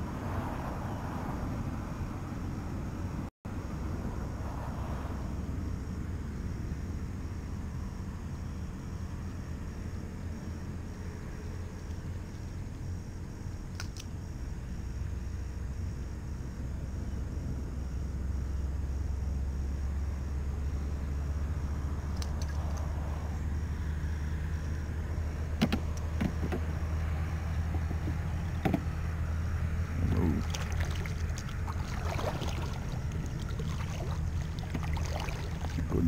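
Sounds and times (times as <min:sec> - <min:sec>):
steady low rumble: 0:00.9 - 0:36.0
water splashing: 0:30.0 - 0:36.0.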